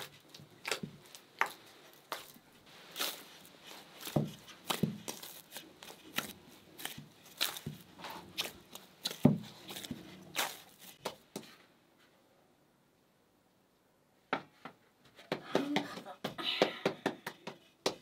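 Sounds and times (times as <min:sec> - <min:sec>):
dough slapping and squishing: 0:00.0 - 0:11.6.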